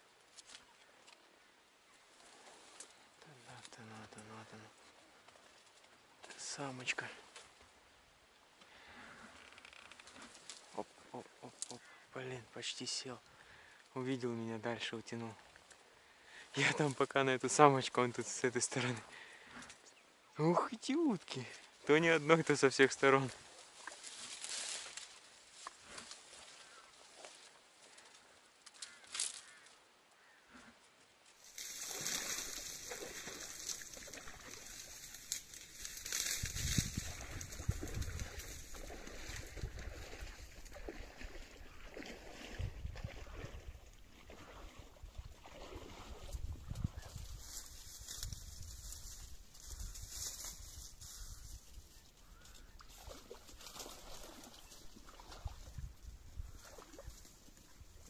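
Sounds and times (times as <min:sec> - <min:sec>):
faint duck quacks: 0:10.7 - 0:12.2, 0:28.8 - 0:30.8
wind hissing through reeds: 0:31.4 - 0:43.9, 0:44.5 - 0:58.0
wind buffeting microphone: 0:36.2 - 0:40.8, 0:42.5 - 0:43.8, 0:45.0 - 0:51.8.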